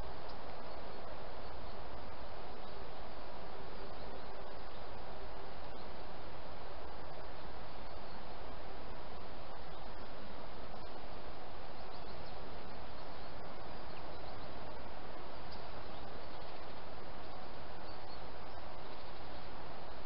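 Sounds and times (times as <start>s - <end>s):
microphone hiss: 0.0s - 20.0s
soft ticks: 0.2s - 0.4s
faint high bird calls: 9.5s - 20.0s.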